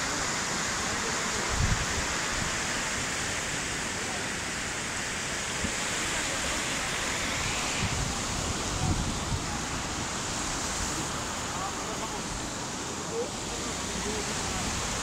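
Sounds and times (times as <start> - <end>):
flood water roaring: 0.0 - 15.0
wind buffeting microphone: 7.3 - 10.8.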